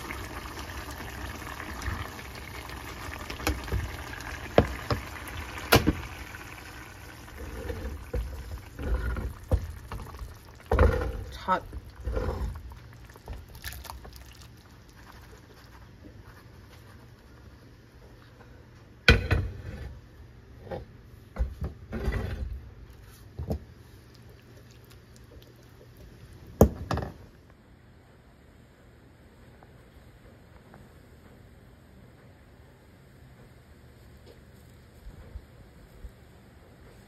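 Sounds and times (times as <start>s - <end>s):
low steady hum: 0.0s - 37.0s
knocks and scrapes: 7.4s - 10.0s, 10.7s - 12.6s, 19.1s - 23.6s.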